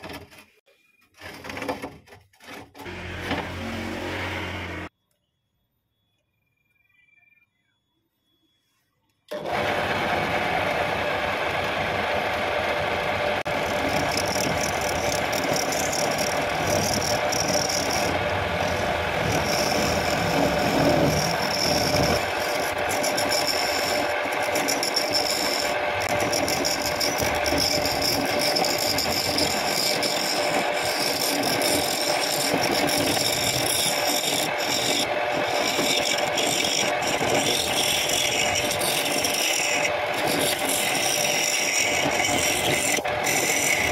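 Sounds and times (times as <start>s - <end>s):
wood lathe humming: 2.8s - 4.9s, 9.3s - 43.9s
chisel scraping spinning wood: 9.3s - 43.9s.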